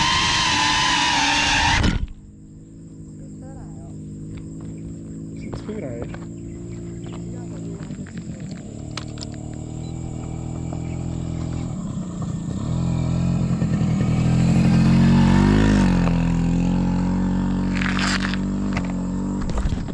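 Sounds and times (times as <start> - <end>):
motorcycle engine running: 2.1 - 19.9.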